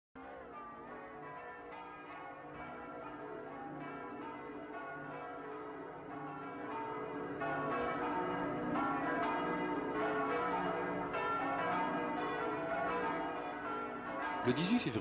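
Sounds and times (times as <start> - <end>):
church bells ringing: 0.2 - 15.0.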